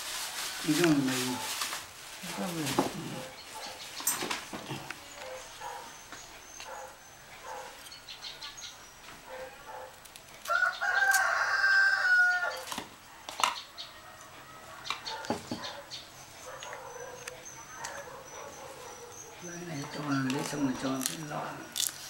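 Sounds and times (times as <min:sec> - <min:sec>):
rooster crowing: 0:10.4 - 0:12.7, 0:13.7 - 0:15.6.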